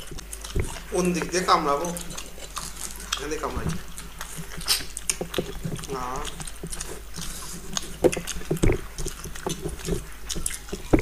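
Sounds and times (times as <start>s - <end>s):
wet chewing and lip-smacking: 0.0s - 11.0s
dull knocks: 8.0s - 8.9s, 10.8s - 11.0s.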